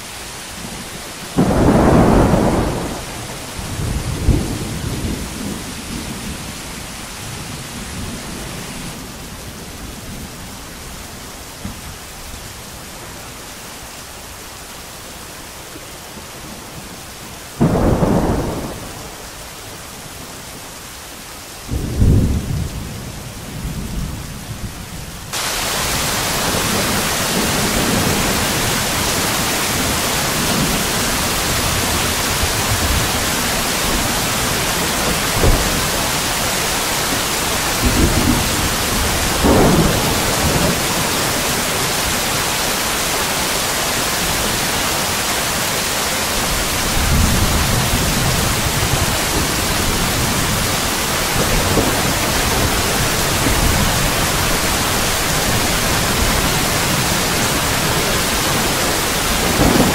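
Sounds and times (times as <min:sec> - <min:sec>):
rain: 0:00.0 - 0:59.9
thunderclaps and rumbling: 0:00.6 - 0:10.4, 0:17.6 - 0:19.3, 0:21.7 - 0:42.6, 0:46.3 - 0:59.9.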